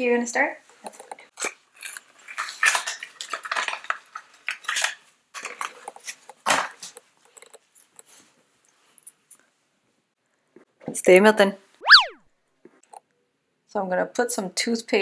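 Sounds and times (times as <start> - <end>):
plastic items clicking and rustling: 1.9 - 7.6.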